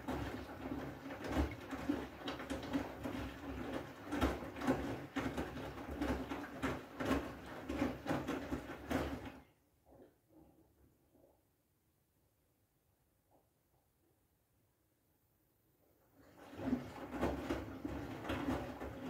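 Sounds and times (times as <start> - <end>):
water sloshing in washing machine: 0.0 - 10.1, 16.1 - 19.0.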